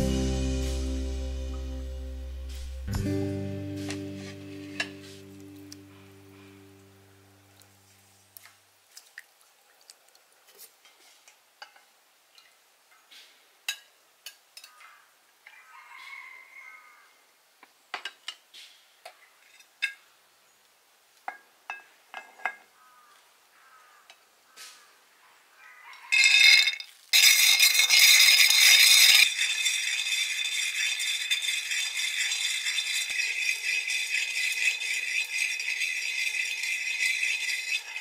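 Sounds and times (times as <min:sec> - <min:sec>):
water dripping: 0:07.5 - 0:10.3
utensil clinking on pot: 0:26.1 - 0:38.0.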